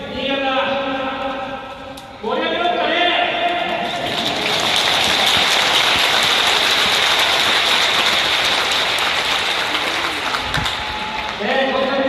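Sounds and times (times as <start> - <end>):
stadium crowd applauding: 3.7 - 12.0.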